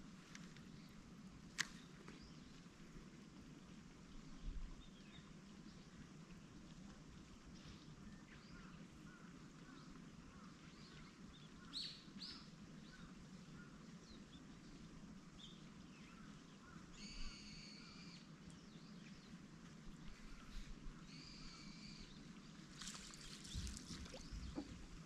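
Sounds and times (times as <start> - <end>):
small birds chirping: 20.0 - 25.0.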